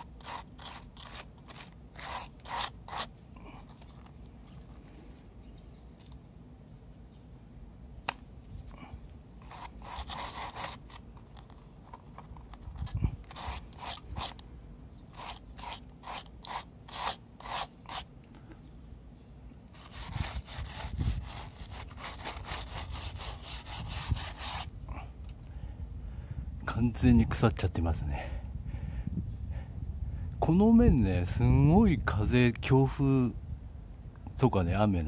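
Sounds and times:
wire brush scrubbing wood: 0.0 - 3.9, 9.4 - 11.1, 13.3 - 14.4, 15.1 - 18.1, 19.8 - 24.7.

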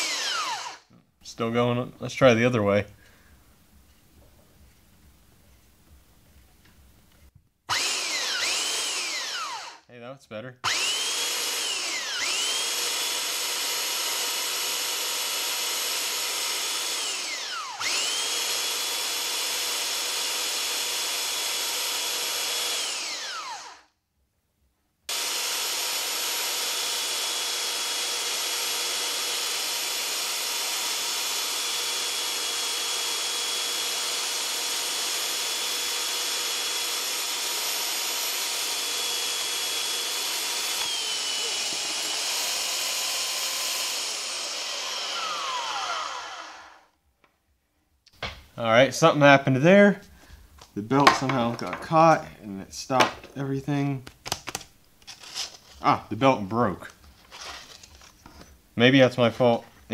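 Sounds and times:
belt sander motor whine: 0.0 - 0.8, 7.7 - 9.8, 10.6 - 23.9, 25.1 - 47.0
wood pressed to sanding belt: 25.3 - 46.8.

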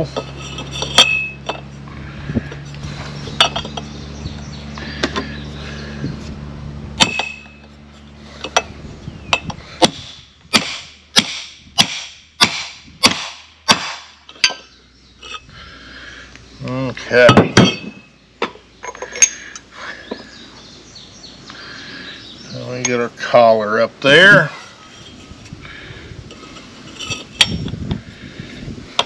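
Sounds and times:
clinks of metal parts: 0.0 - 1.8, 2.5 - 4.0, 7.0 - 9.6, 14.2 - 15.5, 17.0 - 20.3, 26.3 - 27.9
hammer striking metal pipe: 0.2 - 1.6, 7.0 - 7.6.

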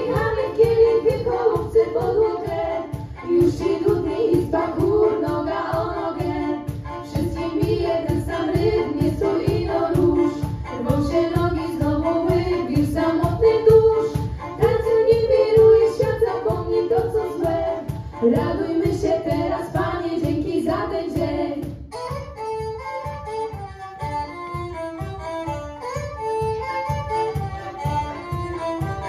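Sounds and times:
girls singing together: 0.0 - 21.7
steady quick beat: 0.0 - 29.0
violin: 0.0 - 29.0.

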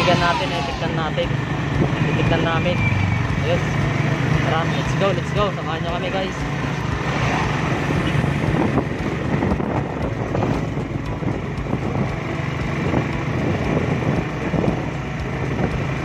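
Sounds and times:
vehicle engine running: 0.0 - 16.0
wind noise on microphone: 6.8 - 16.0.

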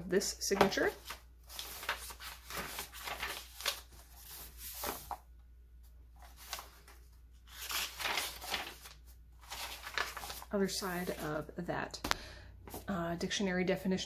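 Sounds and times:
paper pages rustling: 0.5 - 5.3, 6.2 - 11.3.

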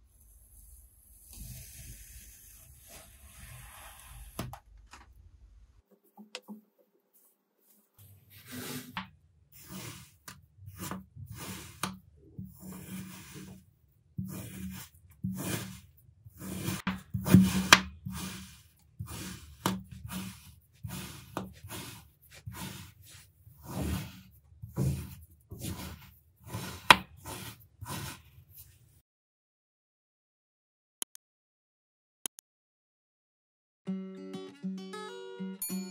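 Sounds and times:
knife slicing through sand: 8.3 - 9.0, 9.6 - 11.9, 12.5 - 13.6, 14.2 - 28.3.

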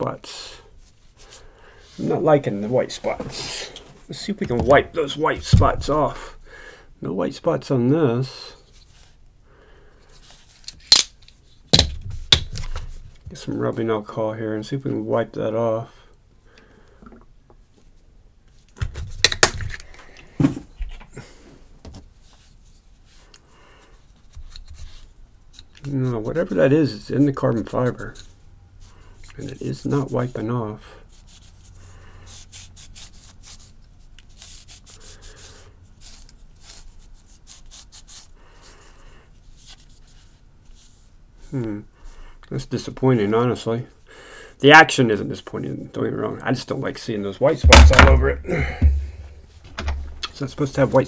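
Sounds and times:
sharp clicks and knocks: 47.6 - 50.4.

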